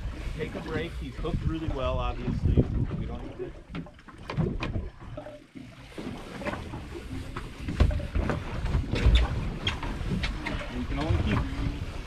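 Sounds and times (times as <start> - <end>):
wind gusting on microphone: 0.0 - 3.6.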